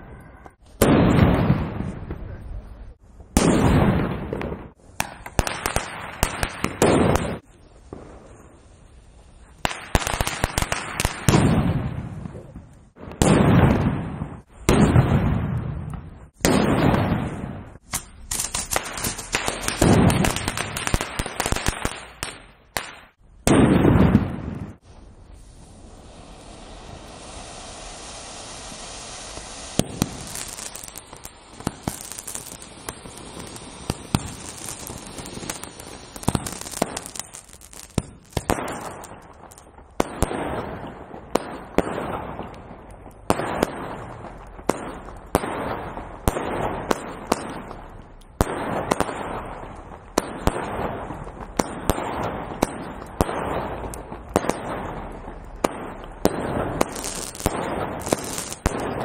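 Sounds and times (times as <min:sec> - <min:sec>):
sharp firework bangs: 0:00.0 - 0:02.4, 0:03.3 - 0:08.4, 0:09.6 - 0:24.9, 0:25.7 - 0:59.0
ground firework hissing: 0:17.7 - 0:22.4, 0:24.8 - 0:42.6, 0:43.2 - 0:59.0
firework cake shots popping: 0:17.8 - 0:24.3, 0:29.2 - 0:40.5, 0:51.4 - 0:59.0.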